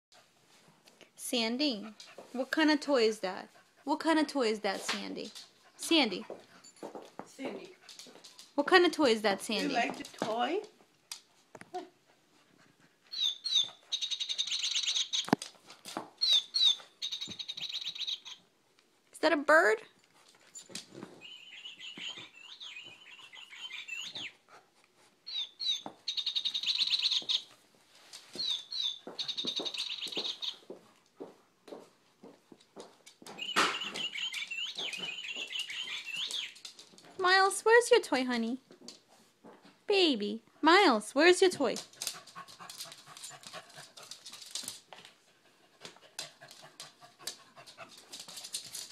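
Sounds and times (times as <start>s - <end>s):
dogs panting and sniffing: 0.1s - 19.0s, 19.9s - 37.6s, 40.5s - 48.9s
dogs shuffling on wooden floor: 4.5s - 11.6s, 25.8s - 37.3s, 41.4s - 48.9s.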